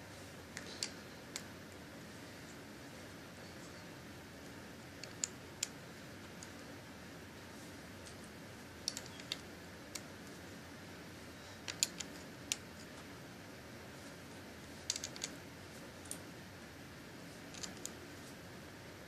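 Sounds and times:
faint steady hiss: 0.0s - 19.0s
plastic bricks clicking: 11.7s - 12.6s, 14.9s - 15.4s.

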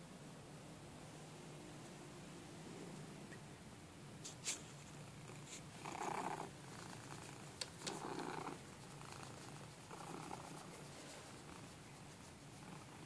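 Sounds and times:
cat purring: 5.0s - 13.0s.

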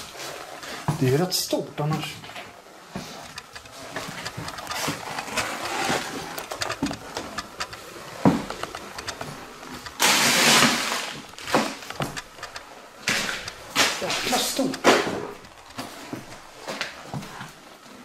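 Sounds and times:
loud rustling scrape: 3.0s - 12.3s
clicks and knocks: 3.2s - 10.0s, 11.2s - 16.4s
footsteps crunching over paper: 13.0s - 17.6s.

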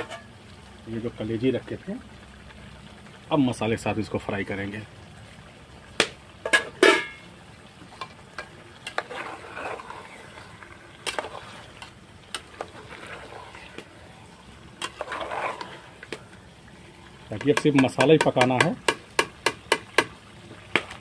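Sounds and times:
spoon scraping a pot: 0.0s - 0.3s, 8.8s - 13.8s, 14.8s - 16.2s
chicken frying in a pot: 0.0s - 21.0s
spoon clanking on pot: 6.5s - 7.2s.

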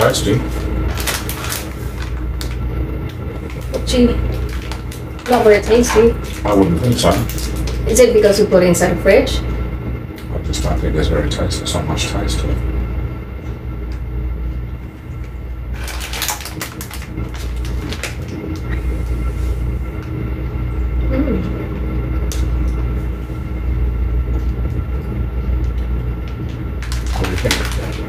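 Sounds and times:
plastic snack wrapper crinkling: 0.0s - 7.9s, 15.7s - 19.2s, 26.3s - 28.0s
steady low hum: 0.0s - 28.0s
steady tones: 0.0s - 28.0s.

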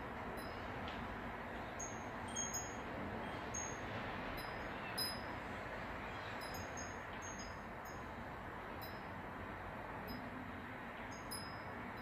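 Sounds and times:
wind chime tinkling: 0.4s - 0.6s, 1.8s - 2.8s, 3.6s - 3.8s, 4.4s - 5.3s, 6.4s - 8.0s, 8.8s - 9.1s, 11.1s - 12.0s.

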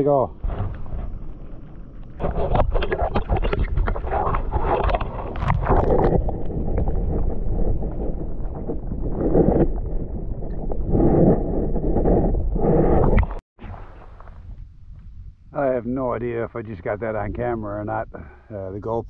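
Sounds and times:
water splashing and sloshing: 0.4s - 12.3s, 13.0s - 15.0s.

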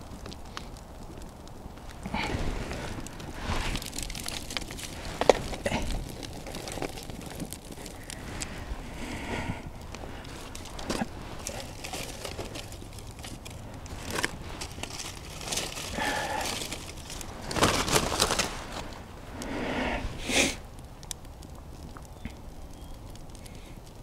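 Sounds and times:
twigs snapping: 0.0s - 19.6s
bark and twigs rustling: 0.0s - 24.0s.

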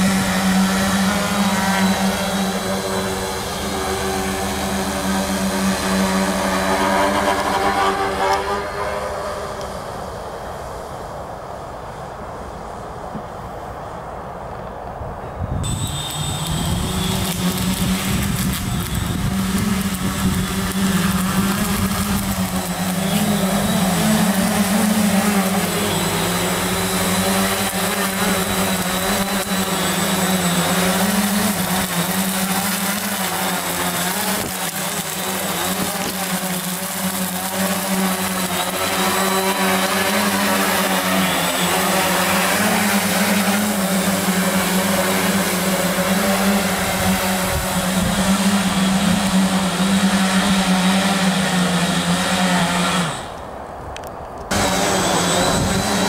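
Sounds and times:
drone rotors buzzing hum: 0.0s - 56.0s.

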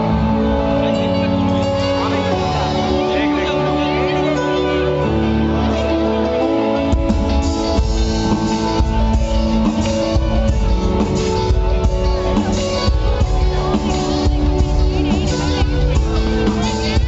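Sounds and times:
guitar chords: 0.0s - 17.0s
live band music: 0.0s - 17.0s
drum kit beat: 6.8s - 17.0s.

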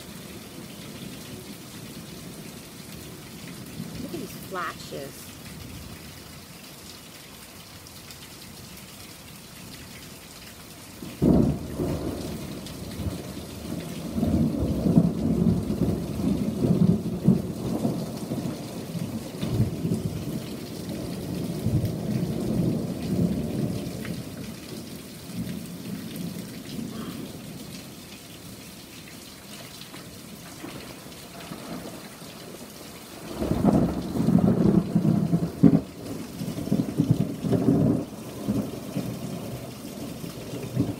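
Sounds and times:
rain falling: 0.0s - 40.9s
thunder clap and rumble: 11.2s - 24.8s, 33.2s - 40.9s.

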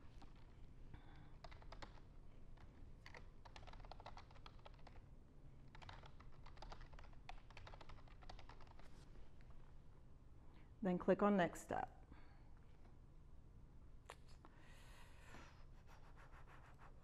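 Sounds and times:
keyboard typing: 1.3s - 2.0s, 2.6s - 5.0s, 5.7s - 8.9s.

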